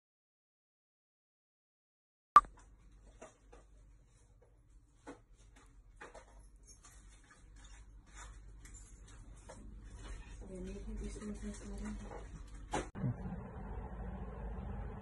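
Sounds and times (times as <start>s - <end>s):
low steady hum: 8.7s - 15.0s.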